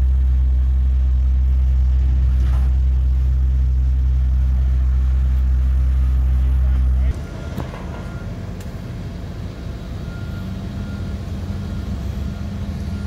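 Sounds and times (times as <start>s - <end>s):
garbage truck diesel engine droning: 0.0s - 13.0s.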